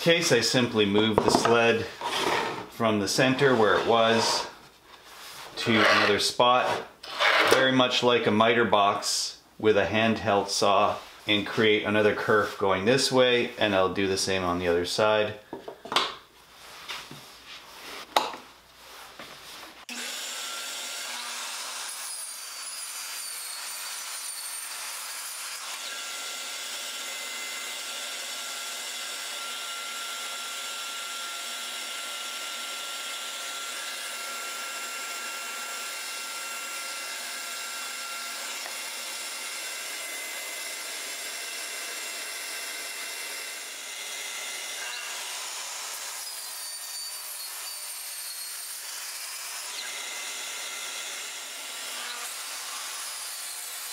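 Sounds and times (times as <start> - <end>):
miter saw cutting: 5.6 - 7.6, 19.9 - 53.9.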